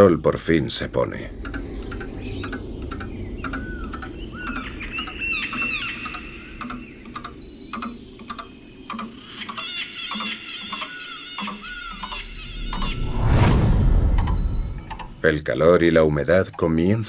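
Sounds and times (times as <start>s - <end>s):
whistled calls and chirps: 0.0s - 15.6s
high insect drone: 0.0s - 17.0s
warbling call: 1.4s - 13.4s.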